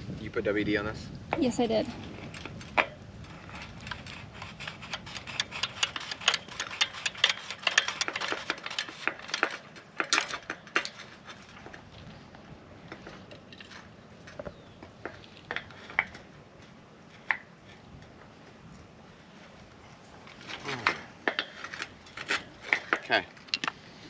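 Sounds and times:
metallic clicking and ticking: 0:02.4 - 0:11.4.

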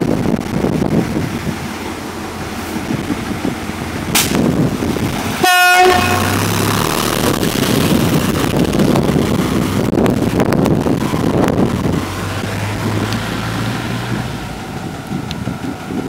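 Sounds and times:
low engine hum: 0:00.0 - 0:16.0
wind noise on microphone: 0:00.0 - 0:16.0
fire engine horn toot: 0:05.4 - 0:06.6.

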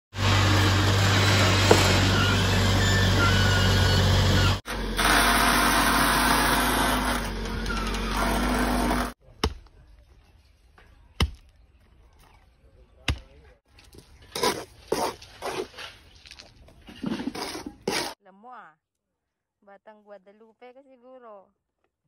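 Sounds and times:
diesel engine running: 0:00.1 - 0:09.2.

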